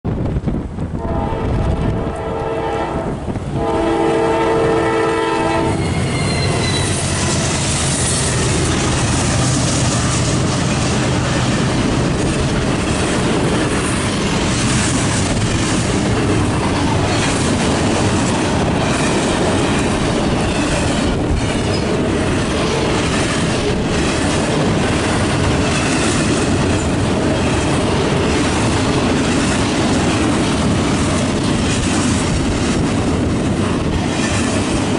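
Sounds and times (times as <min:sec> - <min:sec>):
diesel locomotive engine drone: 0:00.1 - 0:34.9
train air horn blasts: 0:01.0 - 0:08.7
rail cars clacking over rails: 0:03.1 - 0:34.9.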